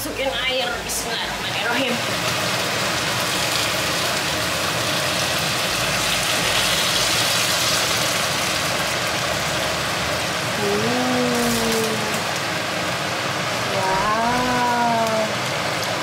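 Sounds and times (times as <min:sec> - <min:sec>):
water pouring into hot pan: 0:01.8 - 0:09.6.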